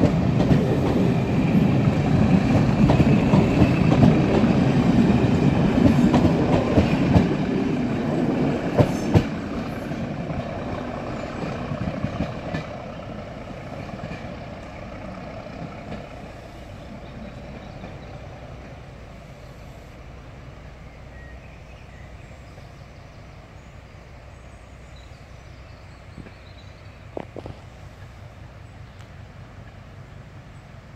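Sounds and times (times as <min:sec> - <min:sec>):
train wheels clattering over rail joints: 0:00.0 - 0:18.7.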